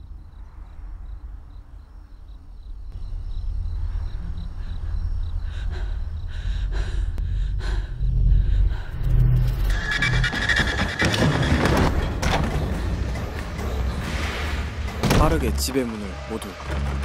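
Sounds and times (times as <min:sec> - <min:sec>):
low rumbling drone: 0:00.0 - 0:10.7
crickets chirping: 0:00.0 - 0:15.0
woman breathing heavily and gasping: 0:03.9 - 0:09.1.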